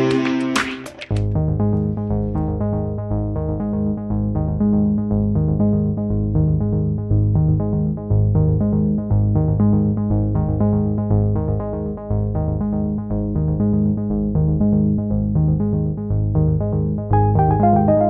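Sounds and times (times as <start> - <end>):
synthesizer and keyboard tune: 0.0 - 1.2, 17.1 - 18.0
repeating bass pattern: 17.2 - 18.0.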